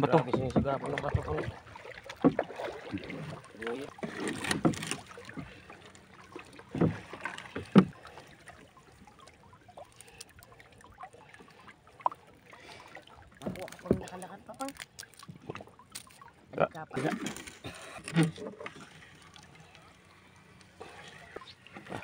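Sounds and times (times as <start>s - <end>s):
wet net hauled by hand: 2.4s - 5.4s.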